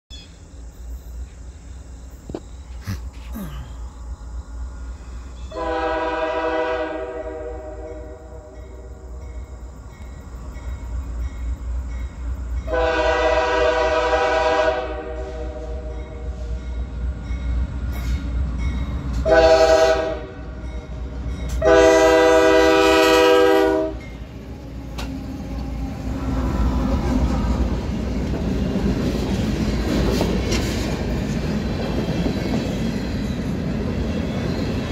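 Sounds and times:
locomotive air horn: 0:05.5 - 0:08.4, 0:12.7 - 0:16.3, 0:19.2 - 0:20.4, 0:21.6 - 0:24.1
train wheels clattering: 0:27.0 - 0:34.9.

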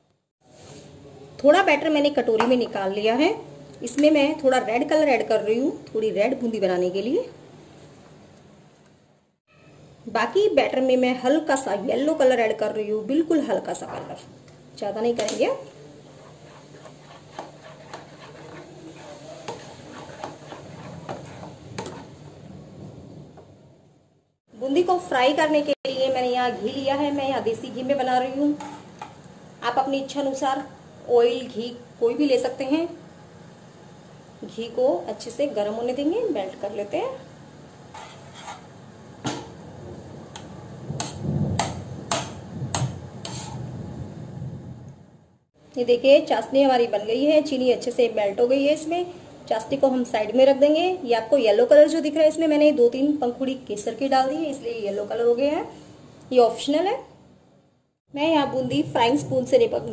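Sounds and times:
hand mixing wet batter: 0:16.0 - 0:22.2.

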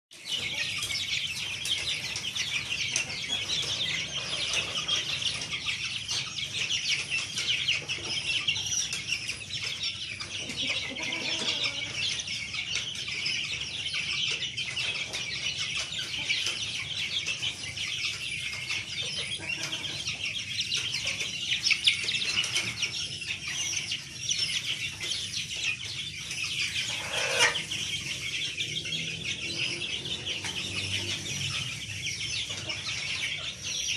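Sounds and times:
chicks peeping: 0:00.1 - 0:33.9.

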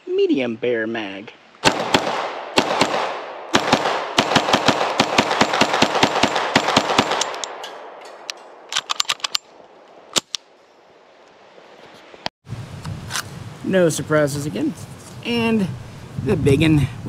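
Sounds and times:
pistol shots with echo: 0:01.6 - 0:08.0.

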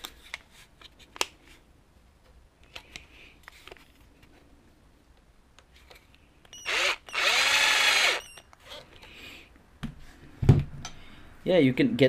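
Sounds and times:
electric screwdriver whirring: 0:06.6 - 0:08.4.

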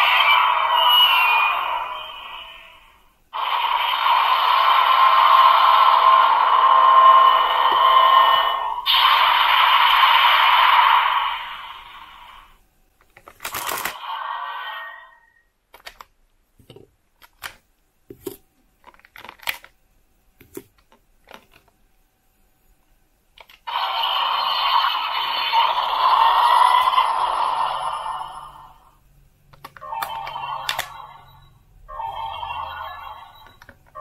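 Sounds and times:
toy electronic sound effect: 0:00.0 - 0:02.8, 0:03.4 - 0:12.3, 0:23.6 - 0:28.8, 0:29.7 - 0:34.0.

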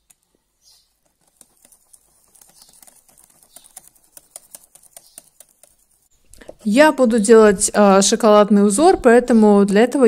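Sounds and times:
whisk clicking on glass bowl: 0:01.0 - 0:06.1.

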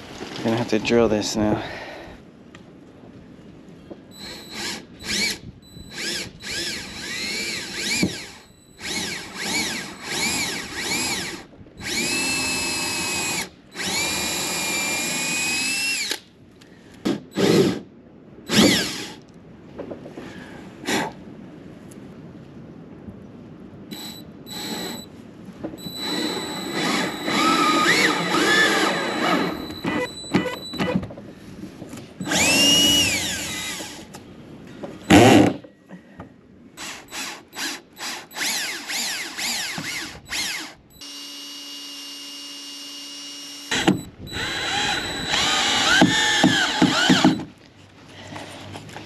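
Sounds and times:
power drill drilling: 0:04.2 - 0:16.2, 0:18.5 - 0:19.2, 0:24.0 - 0:25.0, 0:25.9 - 0:31.0, 0:32.2 - 0:34.0, 0:36.8 - 0:47.5.

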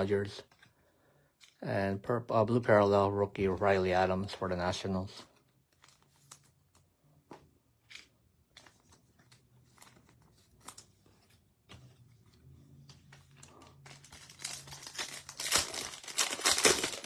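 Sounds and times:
trading cards rustling and clicking: 0:00.4 - 0:01.6, 0:05.2 - 0:17.0.

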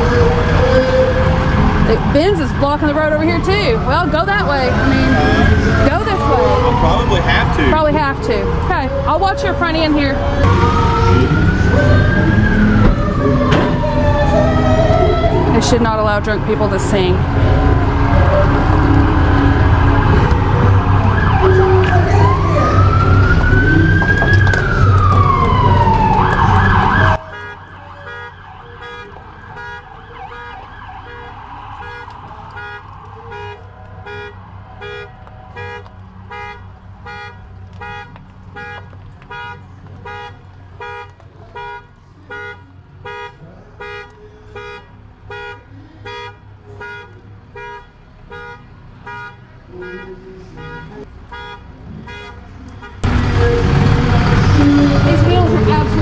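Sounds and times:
emergency vehicle siren wailing: 0:00.0 - 0:37.8, 0:49.6 - 0:56.0
low vehicle hum: 0:00.0 - 0:56.0.

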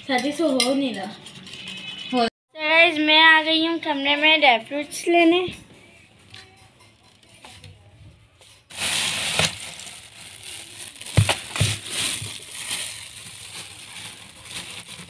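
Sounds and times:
packet rustling and crinkling: 0:08.7 - 0:15.0.

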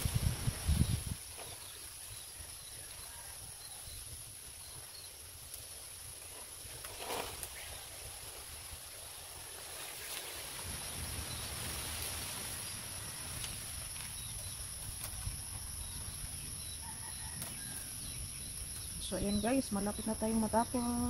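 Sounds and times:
wind rumble on microphone: 0:00.0 - 0:05.0, 0:10.4 - 0:21.0
high insect drone: 0:00.0 - 0:21.0.

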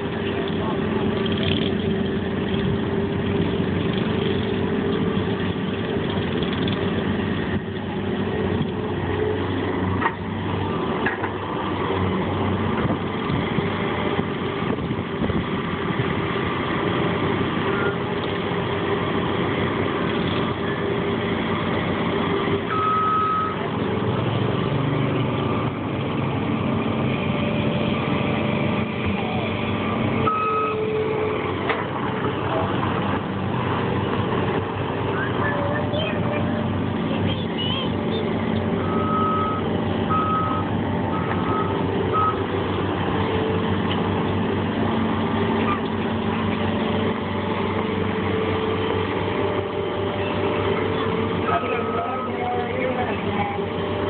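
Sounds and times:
loader diesel engine running: 0:00.0 - 0:54.0
short high beeps: 0:22.7 - 0:23.6, 0:30.3 - 0:30.8.

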